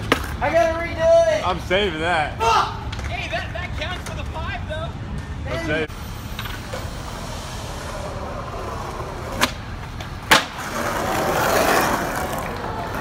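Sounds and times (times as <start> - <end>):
skateboard wheels rolling on concrete: 0.0 - 13.0
skateboard landing smack: 9.4 - 10.8.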